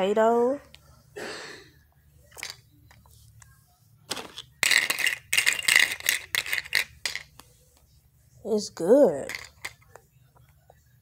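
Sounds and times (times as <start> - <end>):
plastic spoon stirring: 2.3 - 7.8
plastic toy food clattering in bowl: 4.1 - 7.4, 9.1 - 10.0.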